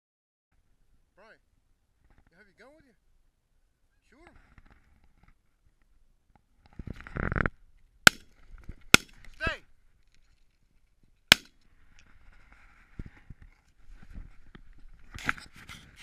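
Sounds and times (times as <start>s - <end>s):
shotgun shots: 9.0s - 9.2s, 11.3s - 11.5s.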